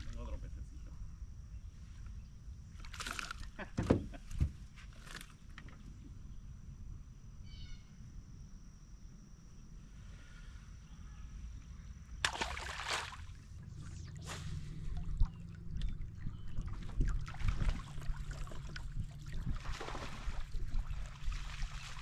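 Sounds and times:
low steady hum: 0.0 - 22.0
fish splashing at surface: 12.2 - 13.4.

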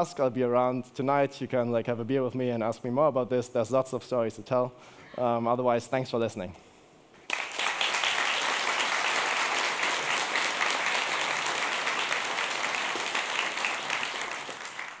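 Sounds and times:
audience applauding: 7.2 - 15.0.

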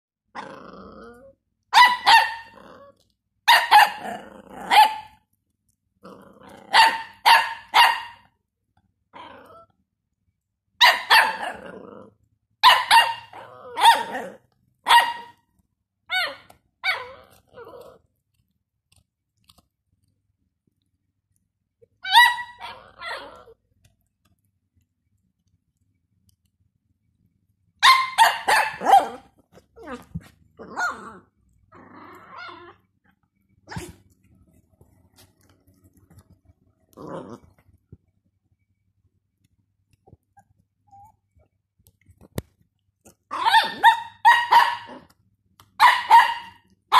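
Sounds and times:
puppy growling: 0.3 - 5.2, 5.9 - 7.2, 9.1 - 9.9, 11.1 - 12.3, 13.2 - 14.6, 16.1 - 19.7, 22.1 - 23.8, 28.5 - 38.1
puppy barking high-pitched: 1.7 - 2.6, 3.4 - 5.2, 6.7 - 8.3, 10.8 - 11.6, 12.6 - 15.4, 16.1 - 17.2, 22.0 - 23.4, 27.8 - 29.3, 43.3 - 46.9
small dog yipping: 1.7 - 2.6, 12.6 - 14.2, 16.1 - 17.9, 22.0 - 23.5, 27.8 - 29.2, 40.4 - 41.2, 43.3 - 45.0, 45.8 - 46.9.

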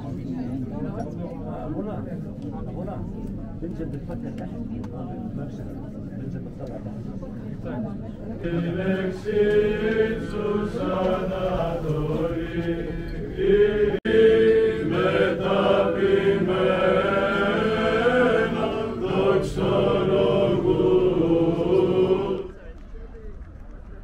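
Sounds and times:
men chanting together: 8.4 - 22.5.

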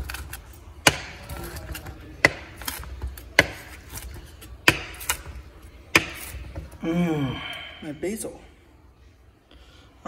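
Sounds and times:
crispy crust crackling under knife: 0.0 - 6.8.

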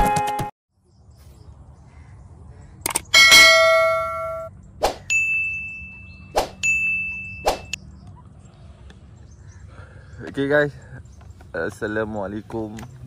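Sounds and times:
sharp metallic clangs: 3.1 - 4.5
loud metallic ding: 3.2 - 4.5.

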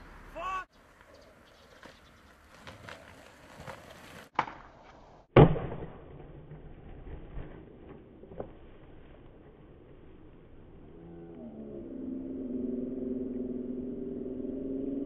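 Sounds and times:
skateboard wheels rolling: 0.8 - 5.5, 6.4 - 10.7
skateboard snapping: 2.5 - 5.0.

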